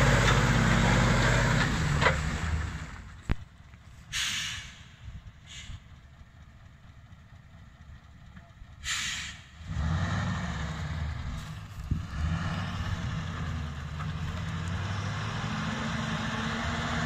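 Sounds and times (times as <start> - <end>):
truck engine idling: 0.0 - 15.8
air brake hisses: 4.1 - 5.9, 8.8 - 9.6.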